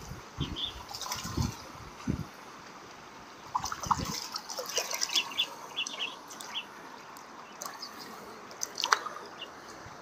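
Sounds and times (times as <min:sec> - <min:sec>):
water trickling: 0:00.4 - 0:02.3, 0:02.9 - 0:10.0
small splashes and drips: 0:00.8 - 0:01.7, 0:03.4 - 0:09.4.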